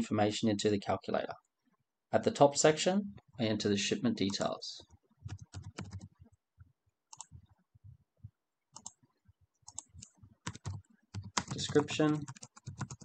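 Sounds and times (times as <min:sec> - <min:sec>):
keyboard keystrokes: 0:09.7 - 0:13.0.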